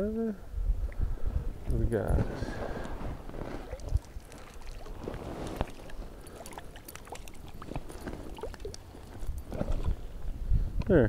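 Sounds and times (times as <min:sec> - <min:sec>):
creek water splashing and gurgling: 0:02.6 - 0:10.2
water drips: 0:03.5 - 0:09.4.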